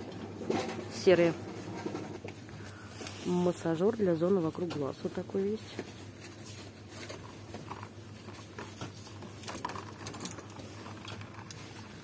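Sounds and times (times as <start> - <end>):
plastic tube clicking and rustling: 6.9 - 12.0.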